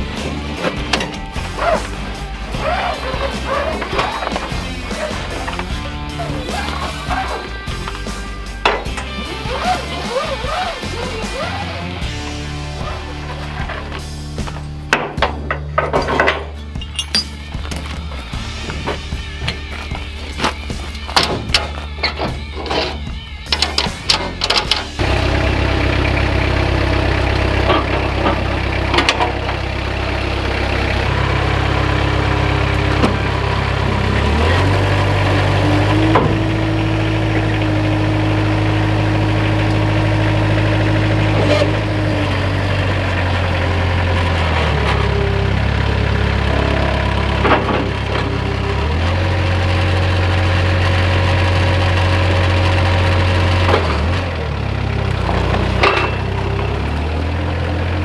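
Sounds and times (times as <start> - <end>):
forklift engine running: 0.0 - 58.0
sharp metal clanks: 14.9 - 17.9, 55.7 - 56.3.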